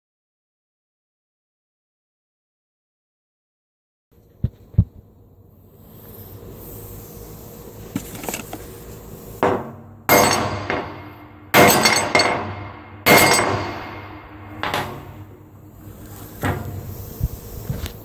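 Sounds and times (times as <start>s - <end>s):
hammer striking metal plate: 9.4s - 15.3s.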